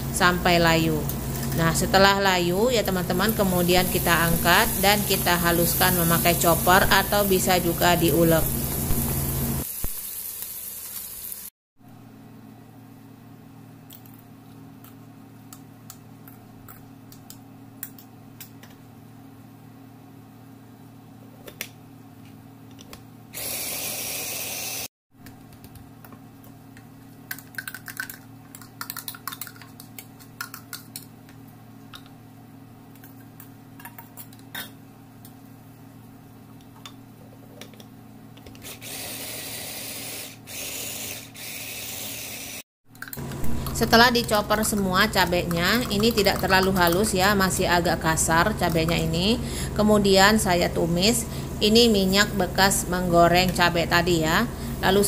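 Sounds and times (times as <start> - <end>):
low steady hum: 0.0 - 9.6, 43.0 - 55.0
vegetables sizzling in hot oil: 3.2 - 11.5
electric food chopper grinding: 23.4 - 24.9, 38.6 - 42.6.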